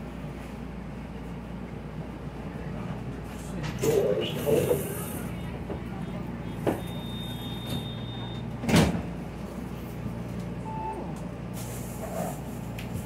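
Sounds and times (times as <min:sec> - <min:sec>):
bus engine hum: 0:00.0 - 0:13.0
short beep: 0:06.5 - 0:08.5, 0:10.6 - 0:11.1.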